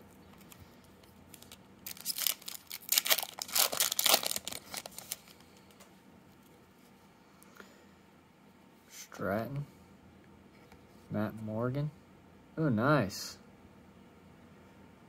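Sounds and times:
foil wrapper tearing and crinkling: 1.3s - 5.4s.

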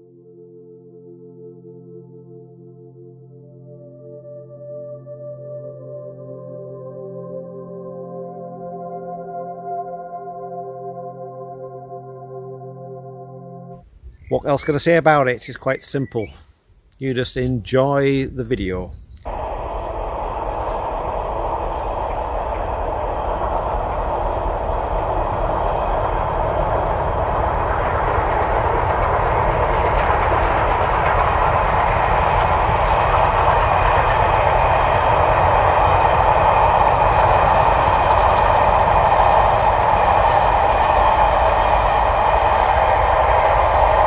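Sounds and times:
distant steam train rumble: 17.3s - 44.0s.

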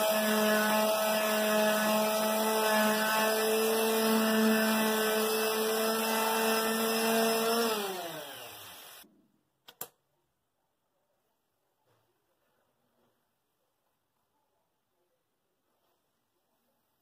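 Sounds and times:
electric palm sander on wood: 0.0s - 9.0s.

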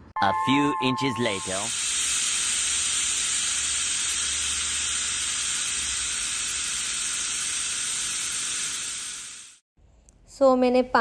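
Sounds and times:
pressure cooker hissing: 1.4s - 9.6s.

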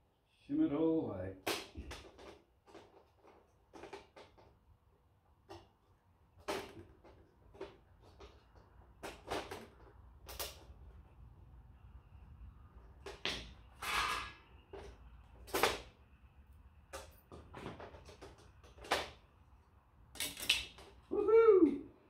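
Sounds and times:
plastic parts clicking and knocking: 1.4s - 4.8s, 5.4s - 11.0s, 16.9s - 19.3s, 20.1s - 21.0s.

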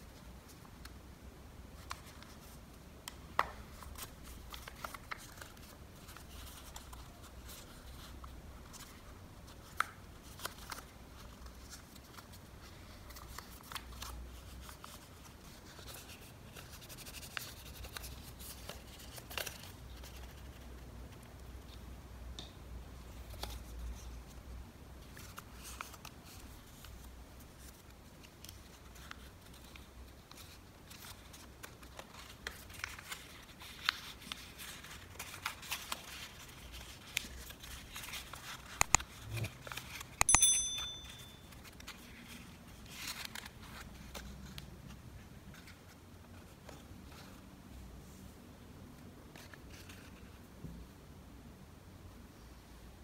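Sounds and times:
paper rustling and crinkling: 3.6s - 20.7s, 25.0s - 40.2s, 41.5s - 47.4s, 49.3s - 50.4s
high ringing tone: 40.2s - 41.6s.

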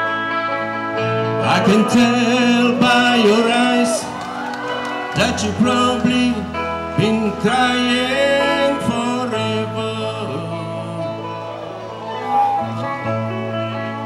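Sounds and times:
bass guitar: 0.0s - 14.0s
electric guitar: 0.0s - 14.0s
man singing into a microphone: 1.3s - 4.2s, 5.1s - 11.6s.

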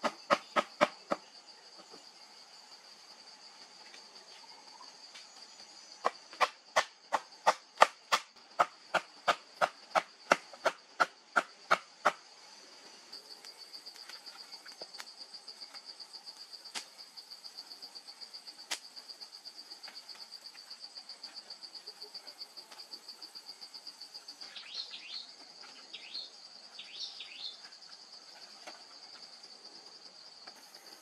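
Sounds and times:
insect chirring trill: 0.0s - 31.0s
bird chirping: 24.4s - 27.8s.

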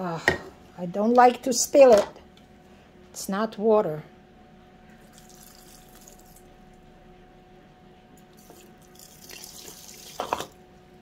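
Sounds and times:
liquid pouring into glass jar: 5.0s - 6.4s, 8.4s - 10.6s.

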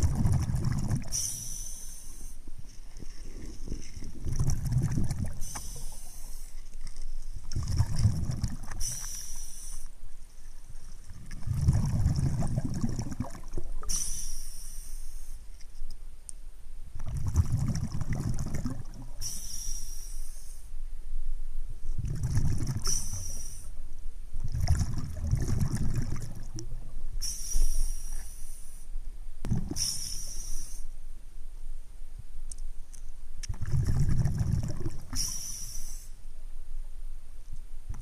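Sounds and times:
exhaled air bubbling: 0.0s - 14.5s, 17.0s - 19.7s, 21.8s - 23.6s, 24.4s - 28.3s, 29.4s - 30.8s, 33.4s - 36.0s
regulator inhale hiss: 1.1s - 2.5s, 5.4s - 6.7s, 8.8s - 10.0s, 13.8s - 15.5s, 19.2s - 20.8s, 22.8s - 23.8s, 27.1s - 29.0s, 29.7s - 31.0s, 35.1s - 36.3s.

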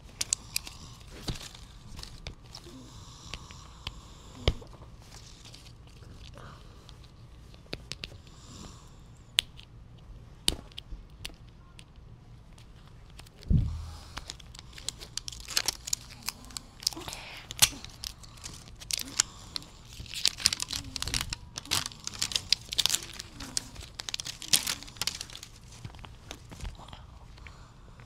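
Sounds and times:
wrapping crinkling and tearing: 0.0s - 2.9s, 5.0s - 7.2s, 12.6s - 27.4s
low thump: 13.5s - 14.0s.

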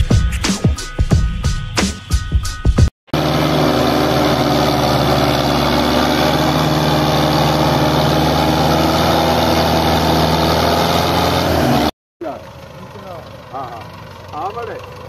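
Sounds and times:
tractor diesel engine under load: 3.1s - 15.0s.

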